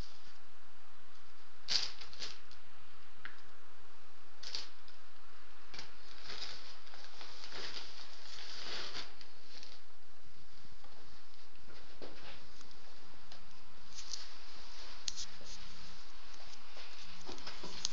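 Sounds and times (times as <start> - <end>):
plastic and paper rustling: 5.7 - 9.9, 10.8 - 17.9.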